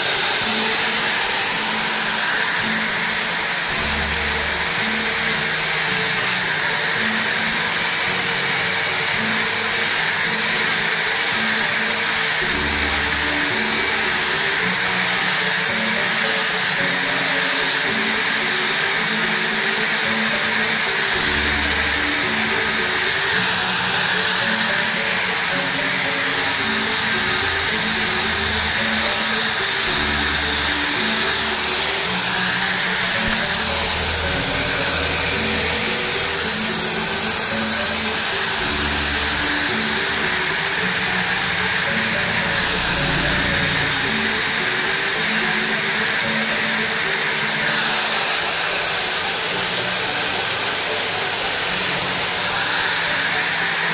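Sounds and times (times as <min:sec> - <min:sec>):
angle grinder sanding steel: 0:00.0 - 0:53.9.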